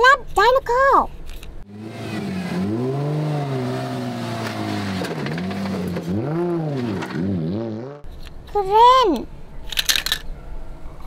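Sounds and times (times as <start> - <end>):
car engine revving: 1.6 - 8.1.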